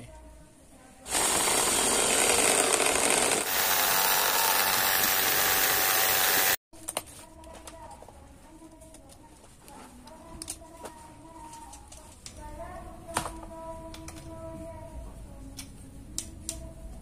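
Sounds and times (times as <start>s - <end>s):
drill press drilling metal: 1.1s - 6.6s.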